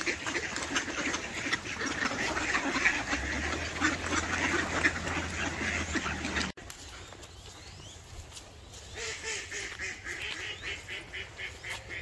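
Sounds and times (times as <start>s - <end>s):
ducks quacking: 0.0s - 6.6s, 8.8s - 12.0s.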